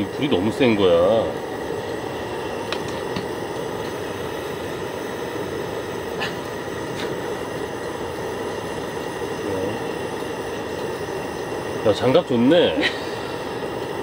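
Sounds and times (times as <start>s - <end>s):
gas burner rushing flame: 0.0s - 14.0s
pot boiling and bubbling: 0.0s - 14.0s.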